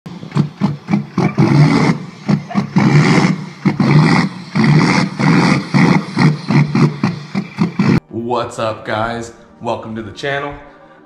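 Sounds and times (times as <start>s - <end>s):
diesel pickup revving: 0.0s - 8.0s.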